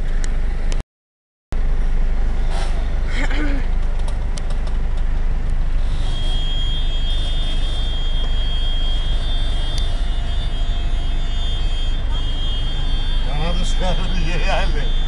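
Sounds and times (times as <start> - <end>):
engine and road rumble: 0.0 - 0.8, 1.5 - 15.0
high-pitched whine: 5.4 - 15.0.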